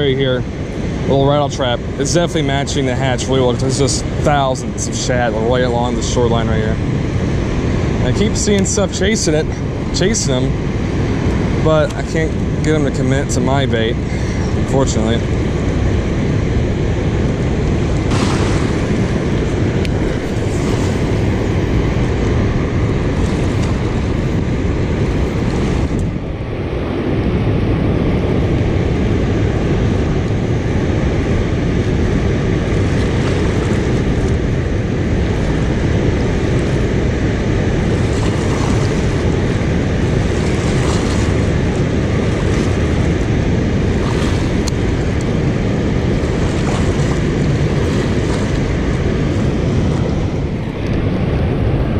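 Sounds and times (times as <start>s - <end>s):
wind buffeting microphone: 0.0s - 51.9s
water rushing through spillway: 31.9s - 50.0s.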